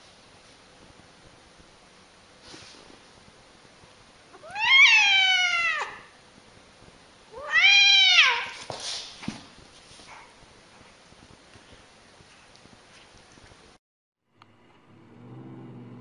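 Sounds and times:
cat yowling meows: 4.4s - 6.1s, 7.3s - 8.6s.

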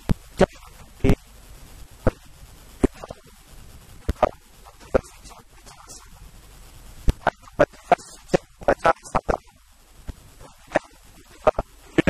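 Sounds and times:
man speaking: 0.4s - 1.2s, 2.8s - 3.2s, 4.2s - 6.1s, 7.2s - 9.6s, 10.4s - 12.0s.

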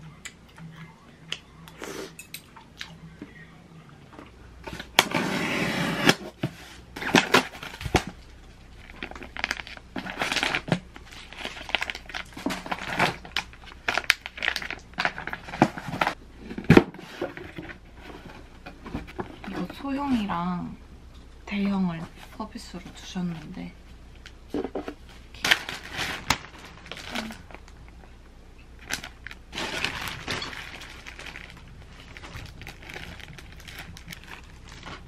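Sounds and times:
packaging rustling and scraping: 4.6s - 20.4s, 24.5s - 27.8s, 28.8s - 35.0s.

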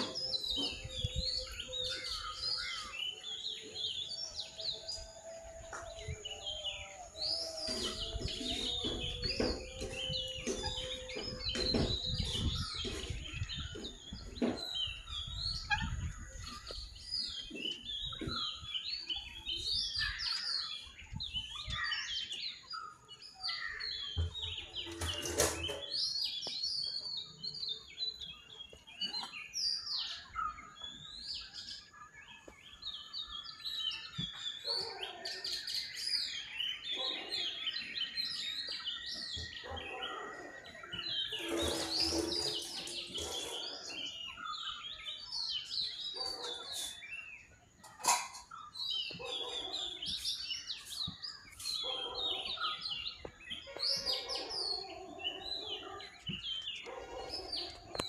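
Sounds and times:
birds chirping and calling: 0.0s - 58.0s.

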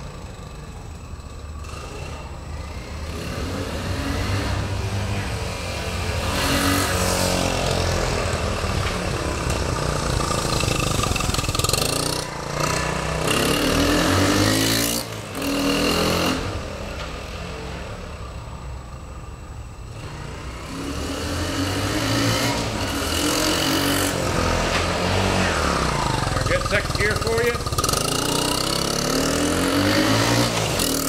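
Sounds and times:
motorcycle engine revving: 0.0s - 31.0s.

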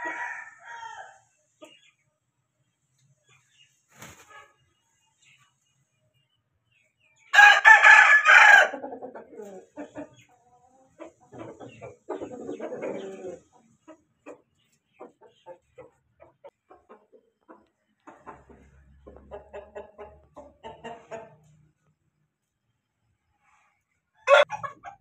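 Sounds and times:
chicken clucking: 0.0s - 25.0s
rooster crowing: 7.4s - 8.8s, 24.2s - 24.5s.

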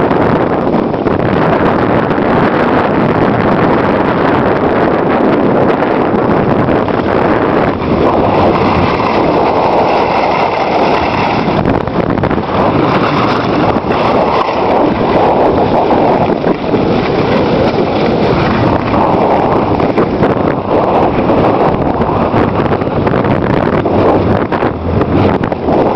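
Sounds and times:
wind rushing over microphone: 0.0s - 25.9s
skis sliding over packed snow: 5.0s - 23.0s.

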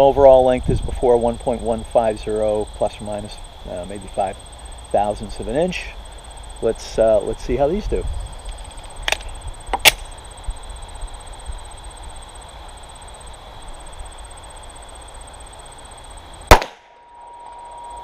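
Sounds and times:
pistol shot: 16.5s - 17.0s.

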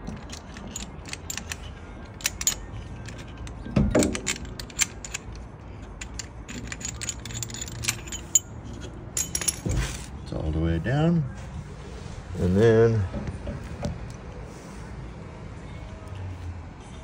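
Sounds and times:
metal tools clinking and rattling: 0.0s - 10.2s.

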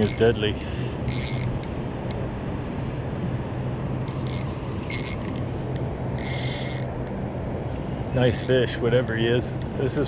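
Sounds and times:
fishing reel ratcheting and whirring: 0.0s - 1.8s, 4.1s - 5.5s, 6.1s - 7.1s, 8.3s - 8.6s
steady low rumble: 0.0s - 10.0s.

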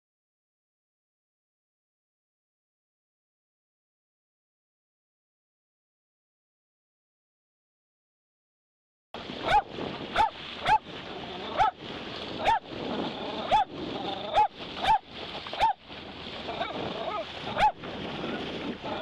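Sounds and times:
water rushing: 9.2s - 19.0s
dog barking: 9.4s - 10.8s, 11.5s - 11.8s, 12.4s - 12.7s, 13.4s - 15.0s, 15.6s - 15.8s, 16.5s - 17.8s.

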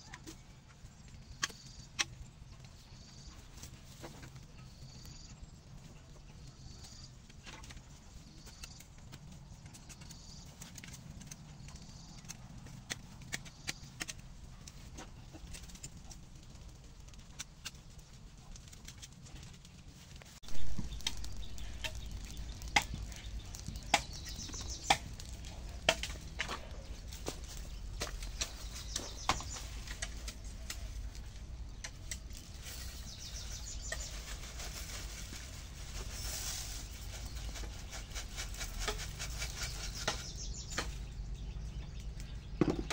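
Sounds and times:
fire crackling and popping: 0.8s - 42.9s
low handling rumble: 20.4s - 34.5s
bird chirps: 20.5s - 31.1s, 31.7s - 35.4s, 36.0s - 42.9s.

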